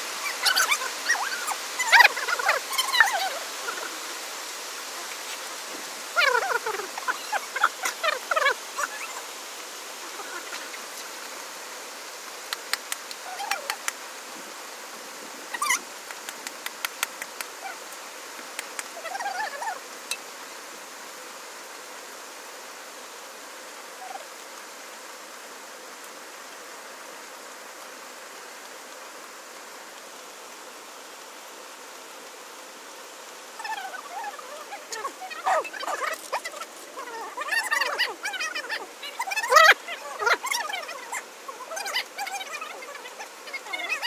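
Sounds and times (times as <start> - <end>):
steady hiss: 0.0 - 44.0
animal calls: 0.2 - 4.2, 6.1 - 9.4, 10.0 - 11.2, 13.2 - 13.9, 15.5 - 15.8, 18.9 - 19.8, 33.6 - 44.0.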